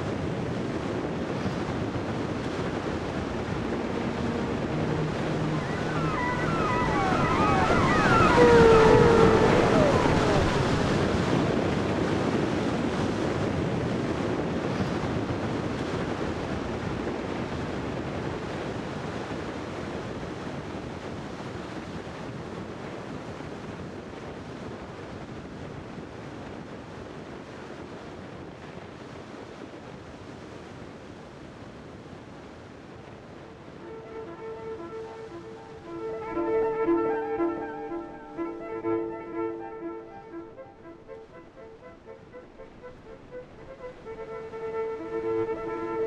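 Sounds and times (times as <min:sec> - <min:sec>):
ocean surf breaking: 0:00.0 - 0:20.0, 0:33.6 - 0:46.0
wind buffeting the microphone: 0:00.0 - 0:36.1.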